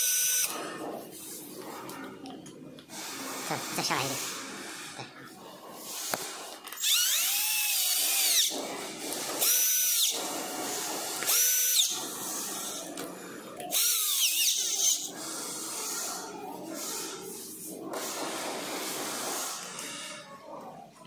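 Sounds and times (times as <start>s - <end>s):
cordless drill motor whine: 0.0s - 0.6s, 6.7s - 8.5s, 9.4s - 10.2s, 11.2s - 12.0s, 13.7s - 15.1s.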